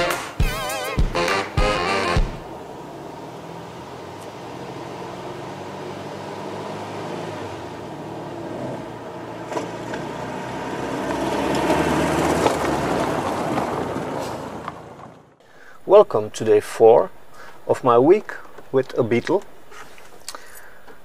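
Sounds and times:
car engines driving up: 0.0 - 15.8
car passing close by: 2.2 - 15.2.

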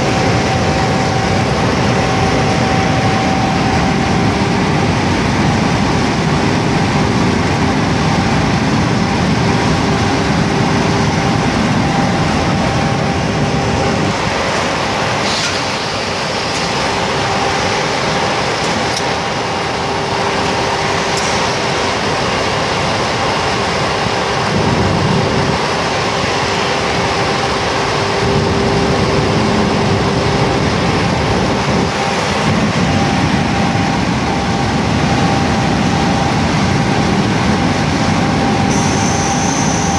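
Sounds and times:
spindle drive humming: 0.0 - 5.8
grinding machine running: 0.0 - 39.9.

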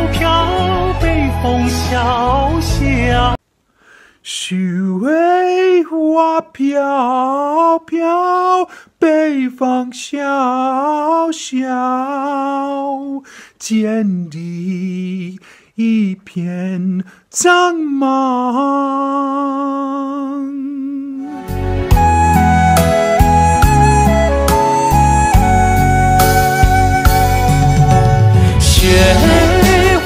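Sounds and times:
man singing solo: 0.0 - 3.4, 4.2 - 21.5, 27.9 - 30.0
singer breathing: 3.6 - 4.2, 8.7 - 9.0, 13.2 - 13.6, 15.4 - 15.8, 17.0 - 17.3, 28.2 - 28.7.

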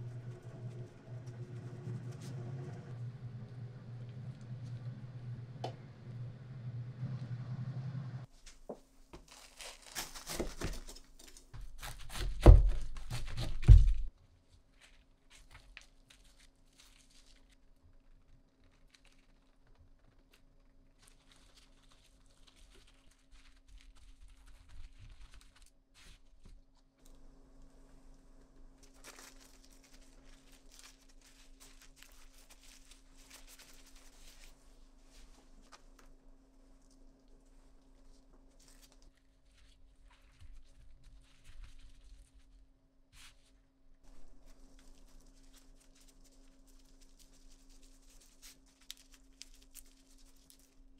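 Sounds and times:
steady low hum: 0.0 - 8.3
packaging crinkling and tearing: 9.2 - 14.0, 14.8 - 26.1, 28.8 - 34.6, 44.1 - 50.9.

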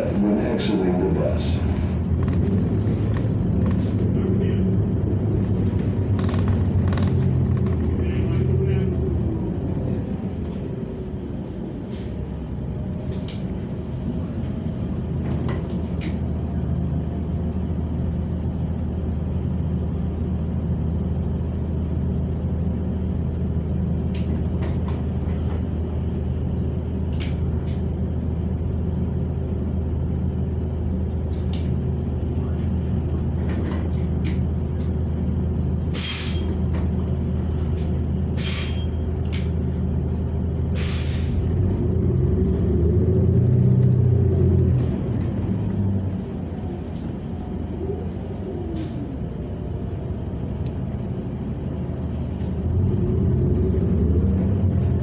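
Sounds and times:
bus engine drone: 0.0 - 55.0
rattles and clicks: 2.0 - 4.1, 5.4 - 8.5
air brake hisses: 11.9 - 12.2, 35.9 - 36.6, 38.4 - 39.0, 40.8 - 41.4.

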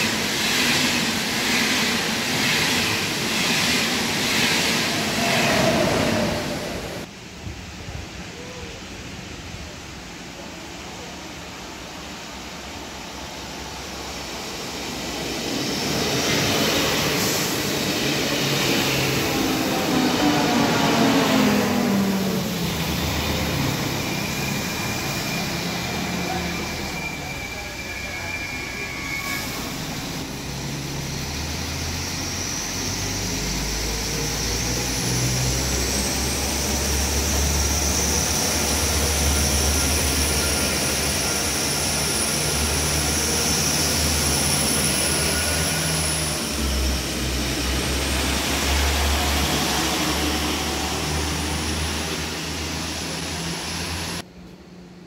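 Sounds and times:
train diesel engines running: 0.0 - 55.0
high whine: 12.2 - 54.6.

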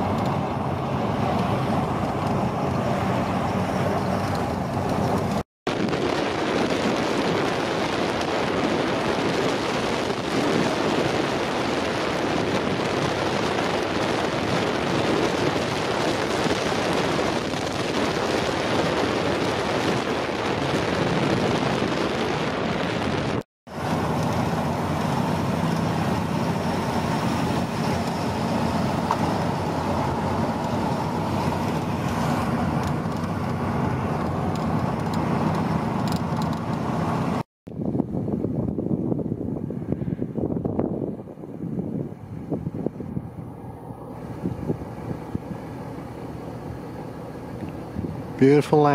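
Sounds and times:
engine drone: 0.0 - 48.9
wind and road noise: 0.0 - 48.9.

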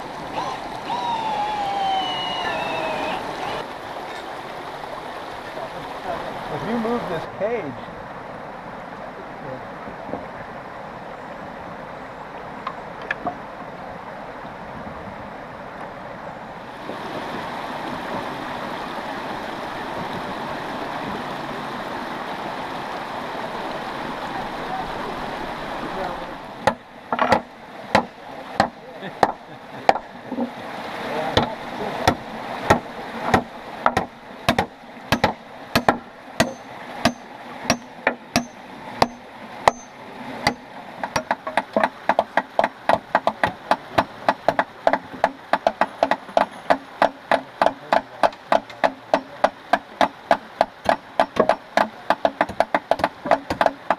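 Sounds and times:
stream running over rocks: 0.0 - 53.9
hammers driving nails into wood: 26.6 - 30.0, 32.1 - 39.9, 40.5 - 53.9.

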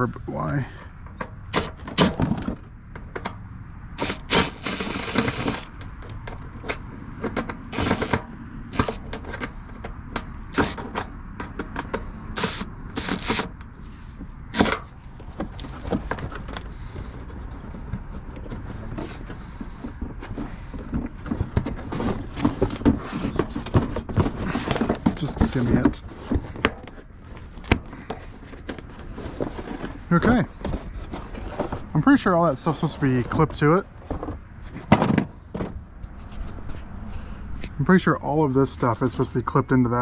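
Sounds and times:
plastic scraping rustle: 4.0 - 9.9, 10.5 - 35.0.

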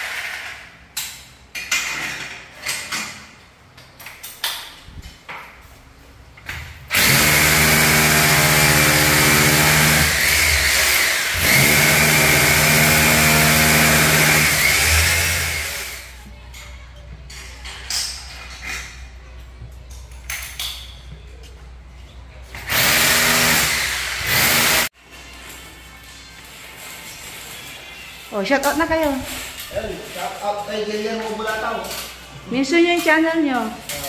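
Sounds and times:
power drill boring into wall: 6.9 - 16.1, 22.7 - 24.9.

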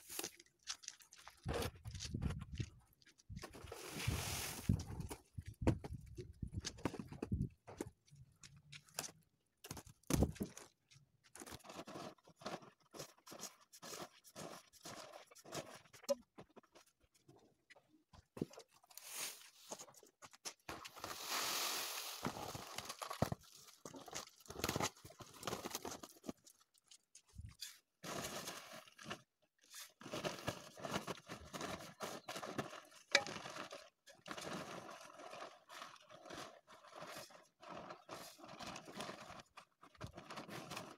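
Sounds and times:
plastic tarpaulin crinkling: 3.4 - 7.5, 20.7 - 40.9
grain rustling and pouring: 3.6 - 5.0, 18.9 - 19.8, 20.8 - 24.6, 28.0 - 40.9.

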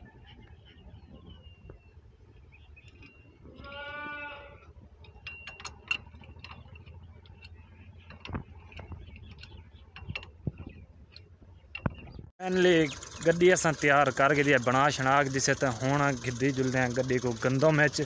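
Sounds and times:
metal parts and tools clinking: 5.0 - 12.2.

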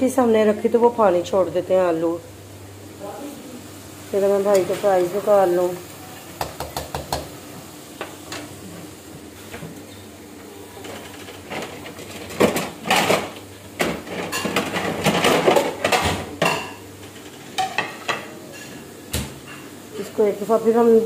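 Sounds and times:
metal utensils clattering on pan: 10.8 - 18.8.

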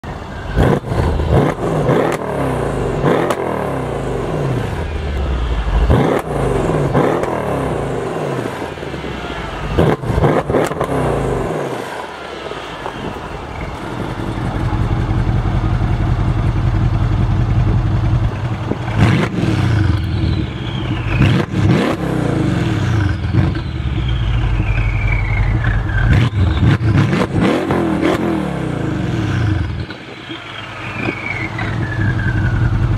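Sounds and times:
car engine idling: 0.0 - 27.1
car engine revving with pops: 0.6 - 8.6, 9.8 - 11.7, 18.8 - 32.9
high falling whistles: 19.8 - 22.0, 23.0 - 26.9, 30.2 - 32.9.

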